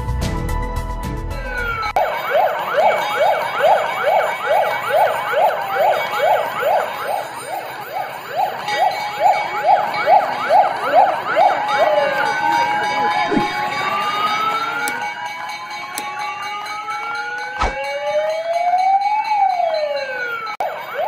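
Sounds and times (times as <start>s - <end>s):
background music: 0.0s - 1.9s
fire engine siren whooping: 1.3s - 21.0s.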